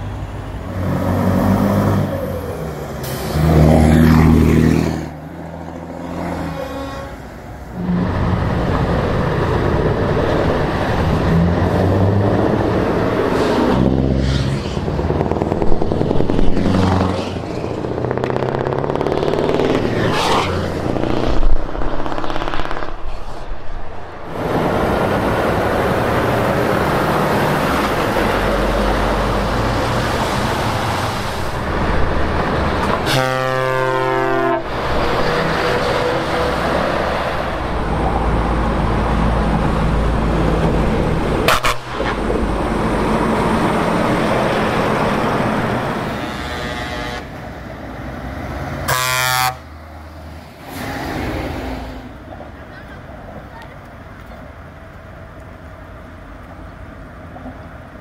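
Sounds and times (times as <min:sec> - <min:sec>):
heavy trucks driving past: 0:00.0 - 0:58.0
truck air horns: 0:06.0 - 0:08.2, 0:33.0 - 0:34.8, 0:41.4 - 0:42.3, 0:45.9 - 0:47.4, 0:48.8 - 0:49.8.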